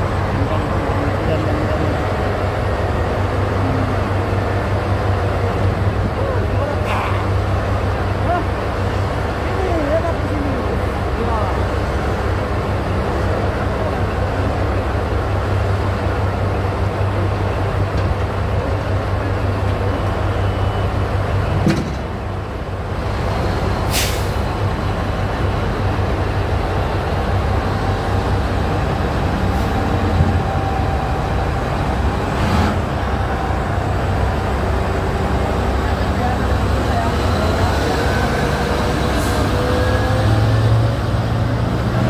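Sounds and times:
diesel engine deep drone: 0.0 - 42.0
brief hiss: 23.9 - 24.4.

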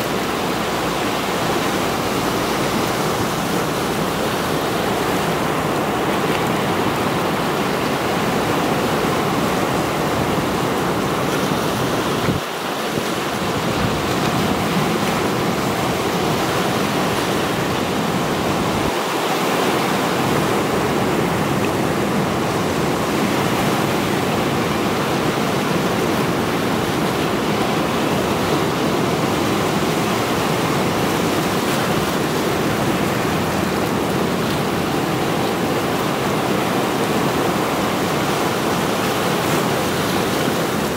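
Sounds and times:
waves breaking on rocks: 0.0 - 40.9.

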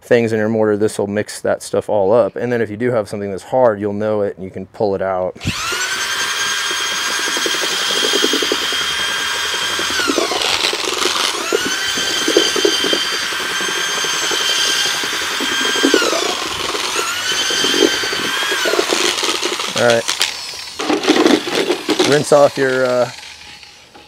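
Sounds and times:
electric mixer motor whining: 5.4 - 24.0
mortar churning: 5.5 - 22.8.

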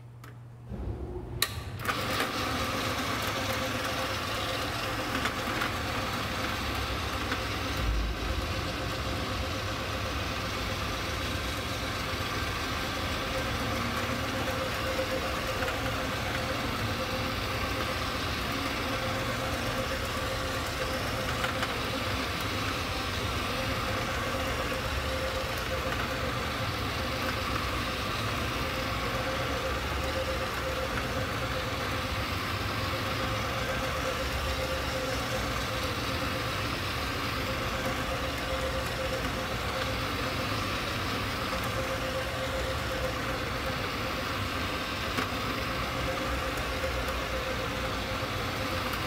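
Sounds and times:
carpet cleaner motor hum: 0.7 - 49.0.

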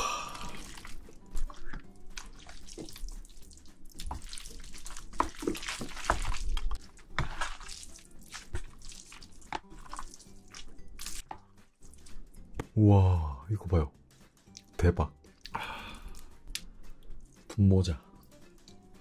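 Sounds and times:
chopsticks mixing sticky noodles: 0.4 - 12.4.

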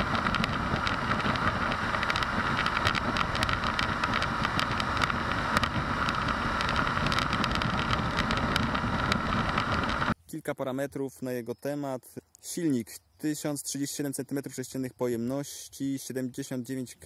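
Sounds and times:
motorcycle engine running: 0.0 - 10.2
wind rushing over microphone: 0.0 - 10.2.

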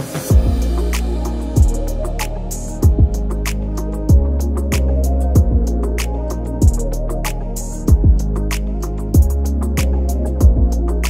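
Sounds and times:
background music with held chords: 0.0 - 11.0
deep bass note dropping: 0.3 - 3.5, 4.1 - 4.5, 5.4 - 5.8.

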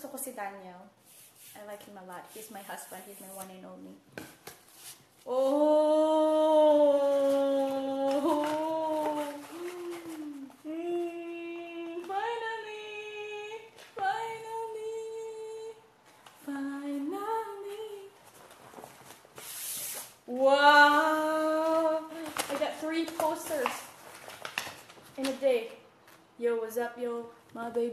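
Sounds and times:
woman vocalizing long notes: 5.3 - 13.5
poster paper rustling: 7.0 - 10.6, 21.4 - 26.2.

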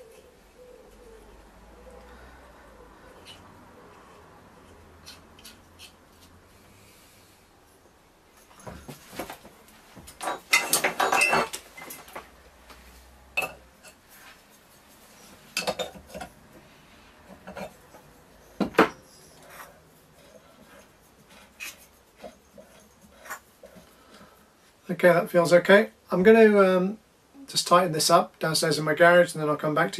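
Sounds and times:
metal tools clinking: 10.1 - 12.2.

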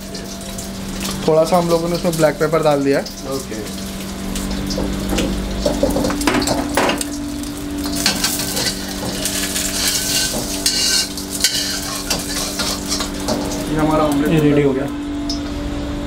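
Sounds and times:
egg sizzling in hot oil: 0.0 - 14.4
metal spatula scraping wok: 8.0 - 13.5.

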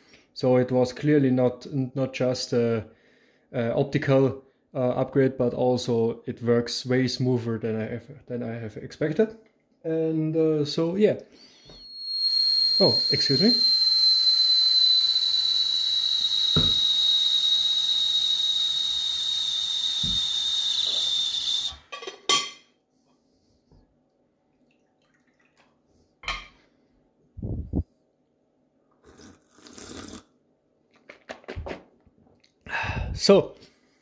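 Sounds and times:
steam whistle over hiss: 11.7 - 21.8.

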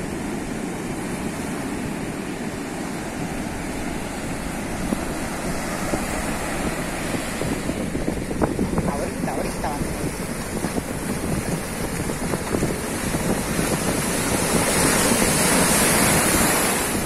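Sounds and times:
ocean surf breaking: 0.0 - 17.0
wind rumbling on microphone: 0.0 - 17.0.

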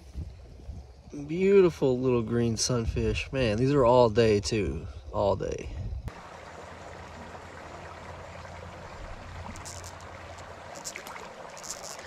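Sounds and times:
creek water hissing: 6.1 - 12.0
high-pitched ticks: 9.5 - 12.0.

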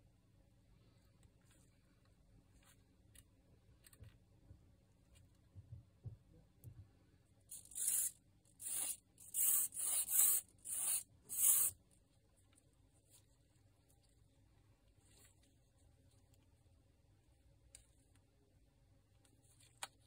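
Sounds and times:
small plastic parts clicking: 7.5 - 11.8.

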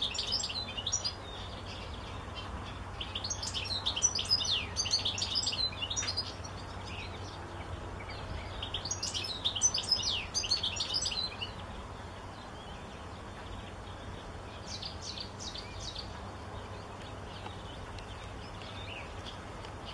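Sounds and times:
bird twittering: 0.0 - 7.4, 8.4 - 11.6.

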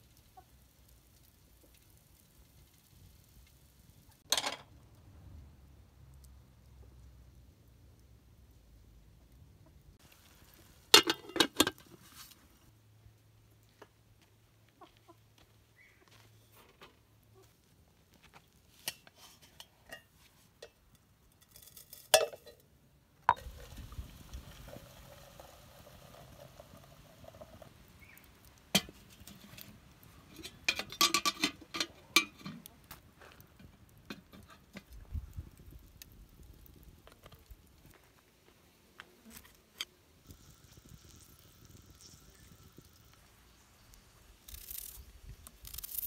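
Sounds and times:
cookware and utensils clinking: 11.0 - 11.8, 21.4 - 22.6, 30.2 - 32.7.

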